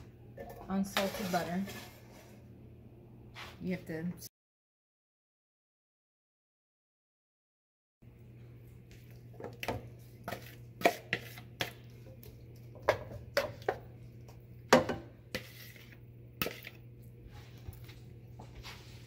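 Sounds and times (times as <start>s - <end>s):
spatula scraping frying pan: 0.8s - 2.4s, 10.2s - 11.8s, 15.3s - 16.8s.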